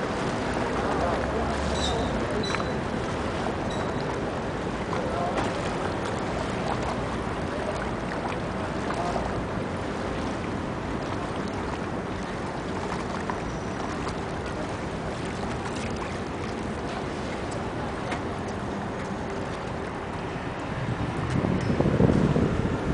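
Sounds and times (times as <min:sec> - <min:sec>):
boat engine hum: 0:00.0 - 0:22.9
water wash: 0:00.0 - 0:22.9
wind noise on microphone: 0:19.9 - 0:22.9.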